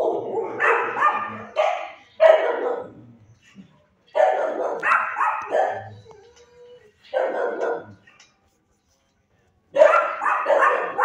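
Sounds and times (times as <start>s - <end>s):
dog barking: 0.0s - 3.0s, 4.1s - 6.0s, 7.1s - 8.0s, 9.7s - 11.0s.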